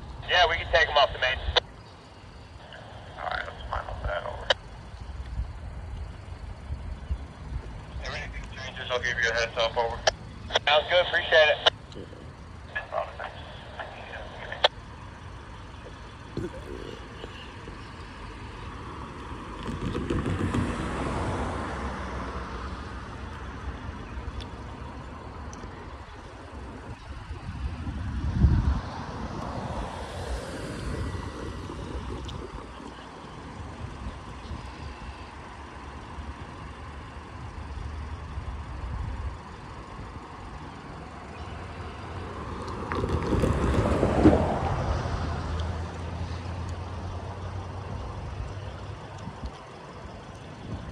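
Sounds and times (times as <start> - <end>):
steady low hum: 0.0 - 42.8
vehicles passing: 0.0 - 50.9.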